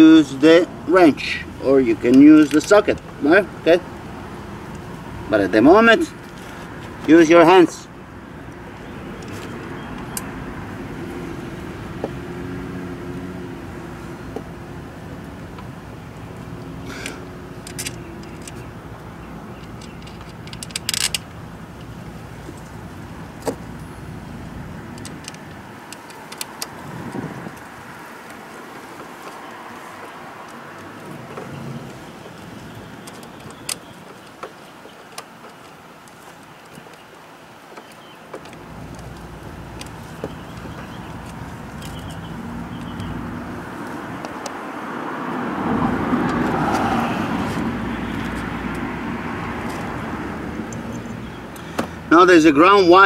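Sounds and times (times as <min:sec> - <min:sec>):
road traffic: 0:00.0 - 0:53.0
vehicle engine hum: 0:00.0 - 0:53.0
tools clicking against engine: 0:02.0 - 0:03.2, 0:16.9 - 0:22.8, 0:24.9 - 0:26.8, 0:30.4 - 0:37.0, 0:37.7 - 0:43.1
small clicks of bolts: 0:17.0 - 0:18.7, 0:19.6 - 0:21.9.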